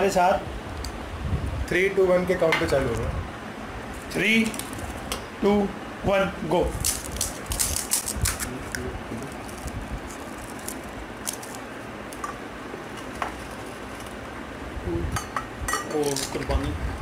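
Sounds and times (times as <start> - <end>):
steady background noise: 0.0 - 17.0
crisp shells cracking: 4.3 - 5.1, 6.7 - 12.3.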